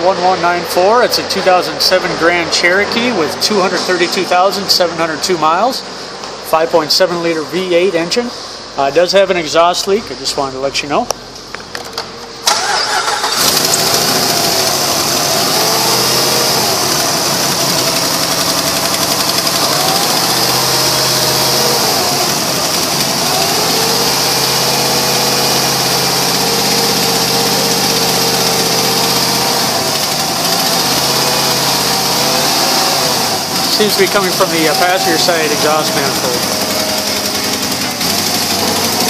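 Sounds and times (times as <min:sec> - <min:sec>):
engine cranking and starting: 0:11.7 - 0:39.0
engine idling: 0:12.0 - 0:39.0.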